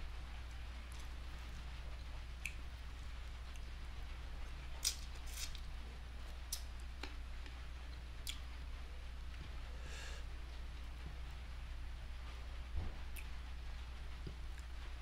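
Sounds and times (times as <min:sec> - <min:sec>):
steady low hum: 0:00.0 - 0:15.0
wet eating clicks and smacks: 0:02.4 - 0:02.6, 0:04.8 - 0:05.6, 0:06.4 - 0:07.6, 0:08.2 - 0:08.5.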